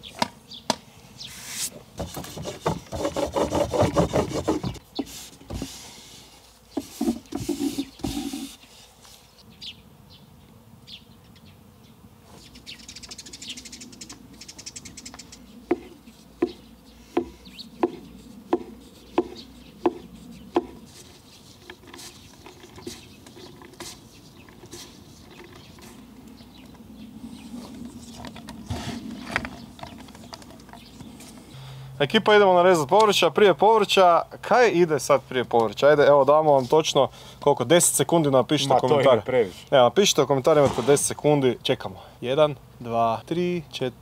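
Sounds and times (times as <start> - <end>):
knife strikes on wooden board: 15.7 - 16.6, 17.2 - 20.0, 20.6 - 20.8.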